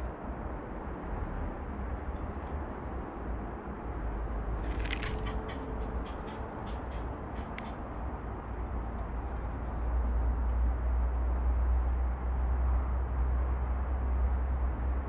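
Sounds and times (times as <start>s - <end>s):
steady low rumble: 0.0s - 15.0s
beaks and feet tapping: 4.6s - 8.3s.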